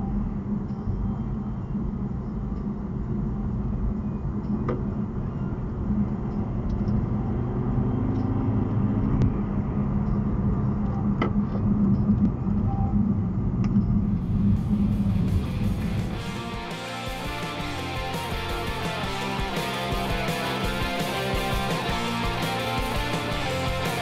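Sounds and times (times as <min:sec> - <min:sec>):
car engine and tyre rumble: 0:00.0 - 0:24.0.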